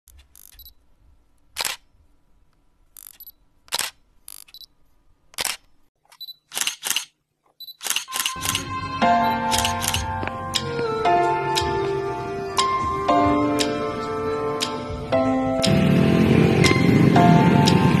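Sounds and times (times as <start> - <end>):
camera shutter clicks: 1.6 - 1.8, 3.0 - 4.6, 5.4 - 7.1, 7.8 - 8.7, 9.5 - 10.1
music: 8.3 - 18.0.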